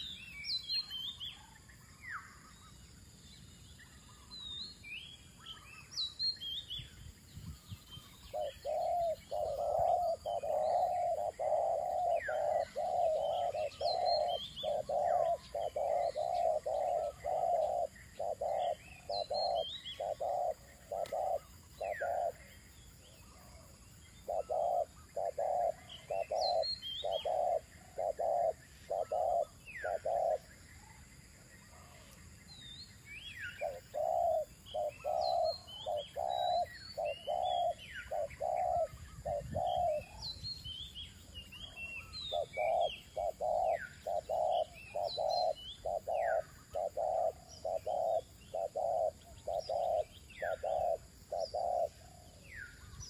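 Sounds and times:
small birds chirping: 0.0s - 53.0s
dove cooing: 8.3s - 22.5s, 24.2s - 30.5s, 33.6s - 40.2s, 41.6s - 52.4s.

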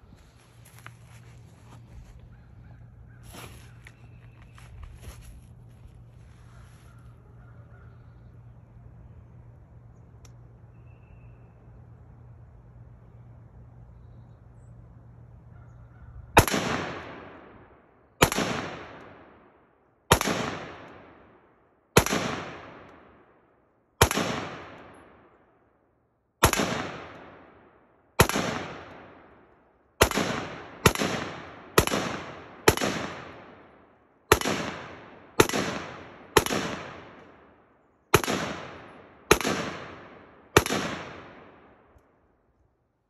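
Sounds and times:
rifle shots with echo: 16.4s - 25.4s, 26.4s - 42.2s.

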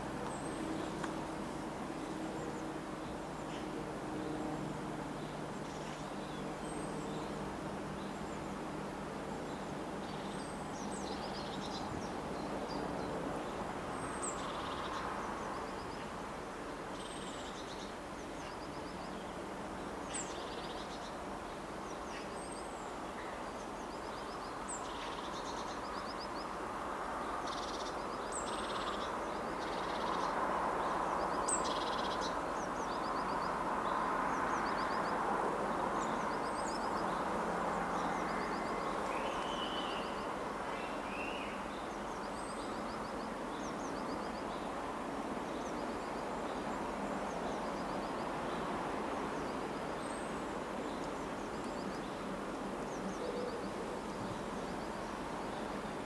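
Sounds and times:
birds chirping: 36.0s - 44.8s.

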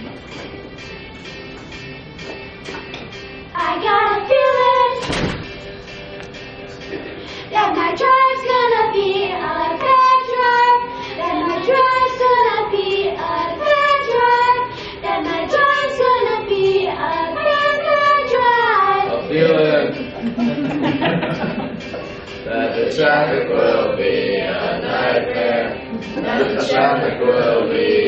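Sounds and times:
children singing: 3.6s - 5.3s, 7.6s - 19.3s, 22.5s - 28.0s.

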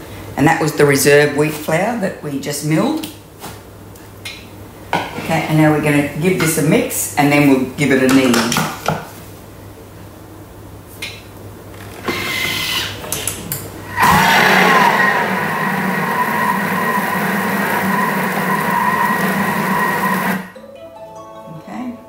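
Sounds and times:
kitchen machine motor humming and whining: 13.8s - 20.6s
short mechanical whirr: 13.9s - 20.5s.

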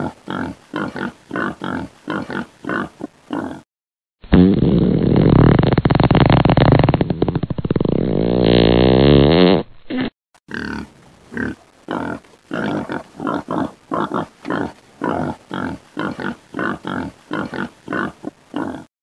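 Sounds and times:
piglets grunting: 10.5s - 18.9s.

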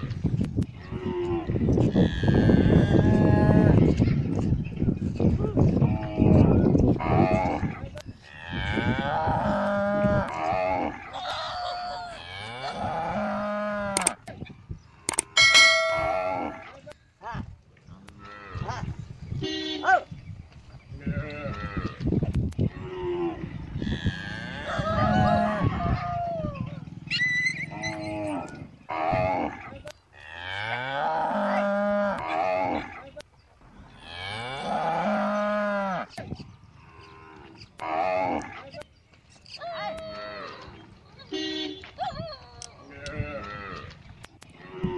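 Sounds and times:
sharp clicks: 14.0s - 14.3s, 15.0s - 15.4s.

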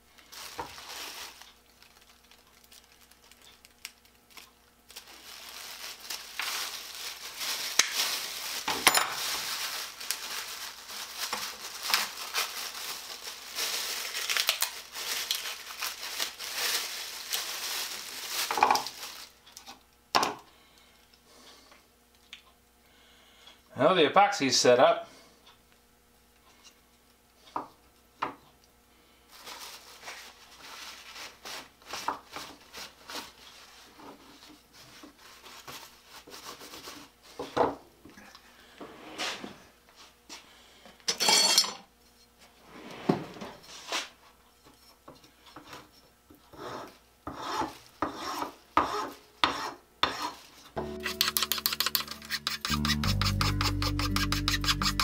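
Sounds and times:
scraping and filing wood: 46.5s - 50.4s, 51.0s - 55.0s.

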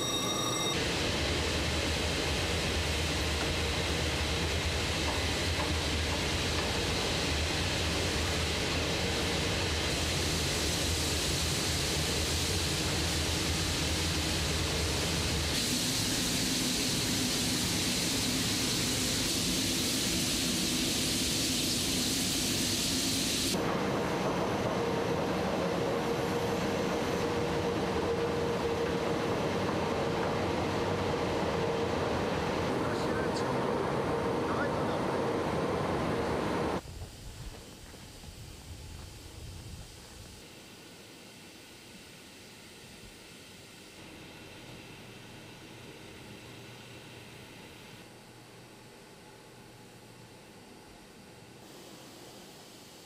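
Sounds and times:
industrial machinery rumble and hiss: 0.0s - 53.0s.

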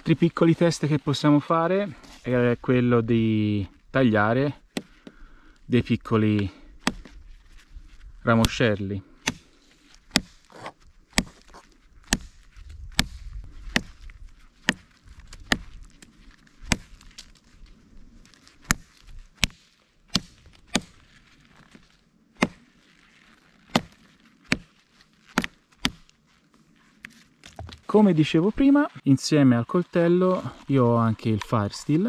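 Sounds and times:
knife cutting twigs: 6.2s - 7.7s, 8.3s - 27.9s.

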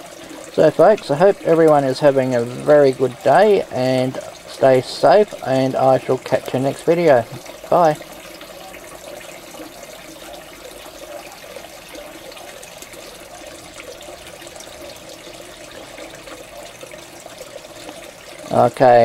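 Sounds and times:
water running into a fish tank: 0.0s - 19.0s.

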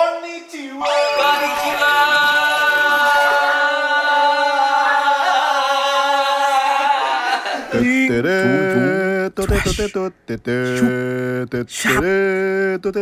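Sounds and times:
man singing long loud note: 7.8s - 9.4s.

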